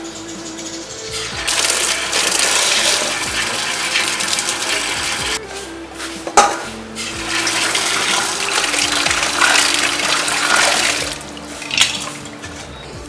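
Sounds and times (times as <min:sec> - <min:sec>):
hands rubbing and rinsing food: 0:01.4 - 0:05.4, 0:07.0 - 0:12.8
tap water pouring into metal basin: 0:01.4 - 0:05.4, 0:07.0 - 0:12.3.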